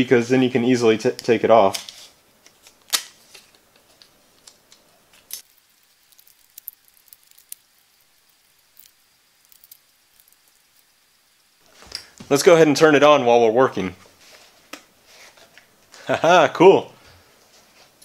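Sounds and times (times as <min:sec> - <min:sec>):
tape pulled and torn: 0:01.7 - 0:03.6.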